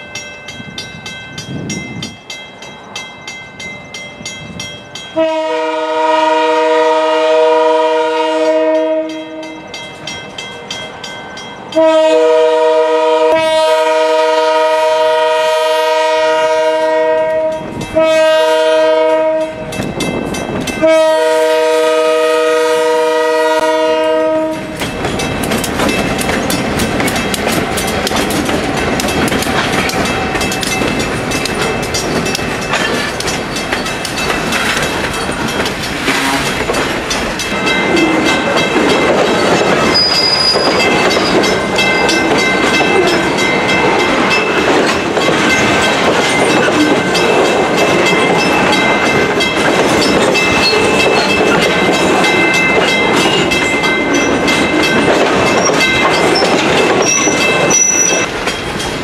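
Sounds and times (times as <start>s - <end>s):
locomotive horn blasts: 5.2s - 9.8s, 11.8s - 19.7s, 20.8s - 24.8s, 36.0s - 36.6s
train wheels clickety-clack: 15.9s - 22.4s, 23.2s - 59.0s
high wheel squeal: 39.7s - 42.2s, 55.6s - 58.3s.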